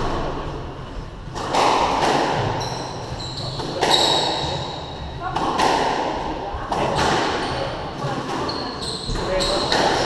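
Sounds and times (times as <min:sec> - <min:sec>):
squash ball hitting walls: 0:01.3 - 0:08.5, 0:09.1 - 0:10.0
shoes squeaking on wooden floor: 0:02.5 - 0:05.1, 0:07.4 - 0:10.0.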